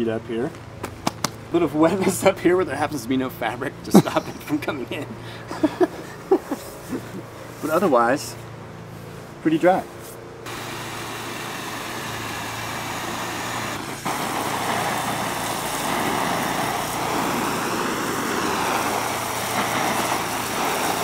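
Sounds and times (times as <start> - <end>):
garden hose spraying water on fabric: 10.5 - 21.0.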